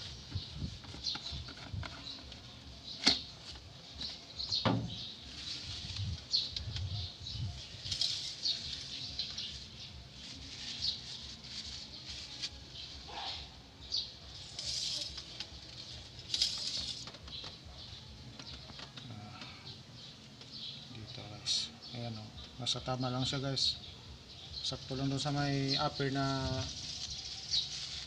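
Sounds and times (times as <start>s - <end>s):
rag rustling and scraping: 4.9s - 6.5s, 7.6s - 13.2s, 14.3s - 17.8s, 26.3s - 28.0s.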